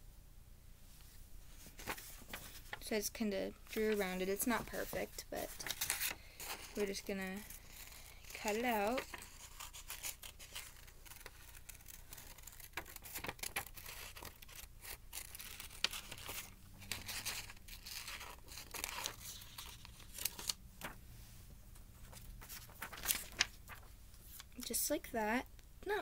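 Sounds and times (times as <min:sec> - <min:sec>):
paper rustling: 0:01.4 - 0:03.0, 0:03.6 - 0:24.8
scissors snipping paper: 0:06.8 - 0:16.4.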